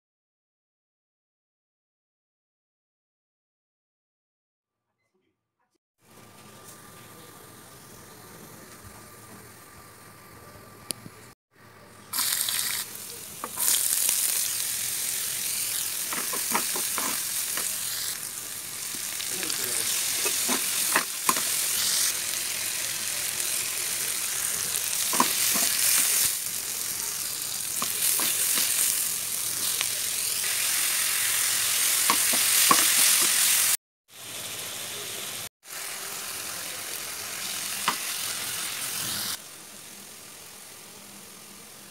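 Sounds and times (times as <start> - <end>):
food sizzling in hot oil: 12.1 - 41.9
spatula scraping pan: 16.0 - 17.7, 19.9 - 21.8.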